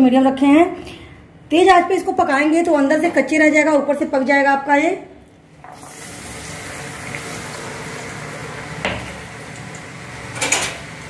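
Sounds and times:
peanuts sizzling in hot oil: 5.7s - 11.0s.

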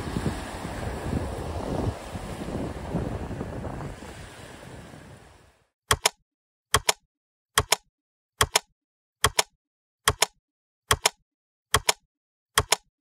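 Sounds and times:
sharp double clicks: 5.9s - 7.0s, 7.6s - 12.0s, 12.6s - 12.9s.

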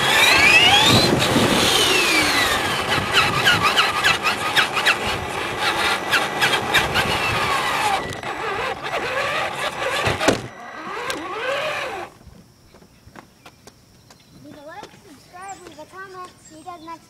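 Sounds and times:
rc truck motor whine: 0.0s - 12.2s.

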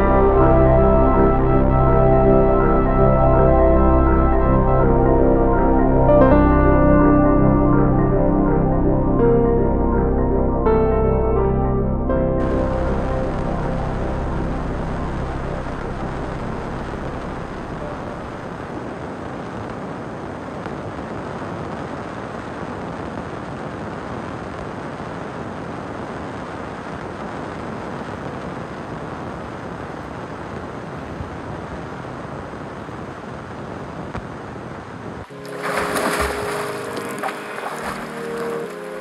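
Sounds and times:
background music: 0.0s - 19.0s, 35.3s - 39.0s
steady rushing noise: 12.4s - 39.0s.

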